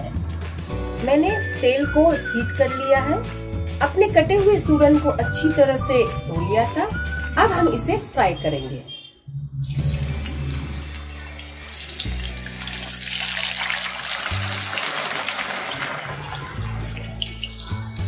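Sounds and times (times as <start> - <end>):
background music: 0.0 - 18.0
hot oil sizzling: 9.6 - 18.0.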